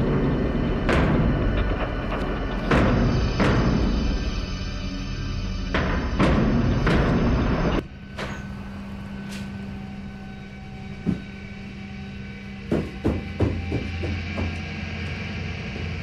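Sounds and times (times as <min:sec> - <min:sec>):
loud rushing drone: 0:00.0 - 0:16.0
low electrical hum: 0:00.0 - 0:16.0
footsteps on carpeted stairs: 0:12.7 - 0:14.7.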